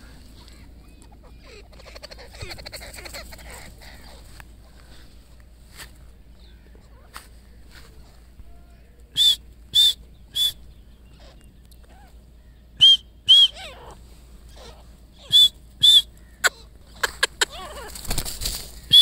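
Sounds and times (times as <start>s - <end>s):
francolin calling: 9.2s - 18.1s, 18.7s - 19.0s.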